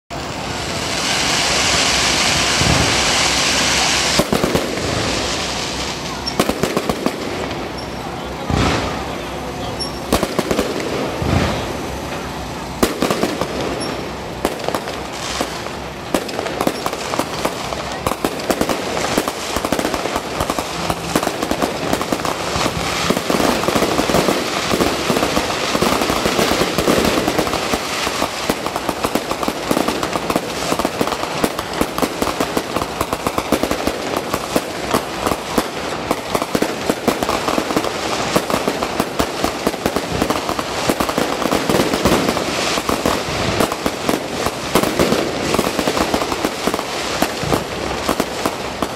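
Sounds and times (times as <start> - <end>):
fireworks crackling bursts: 0.1 - 48.9.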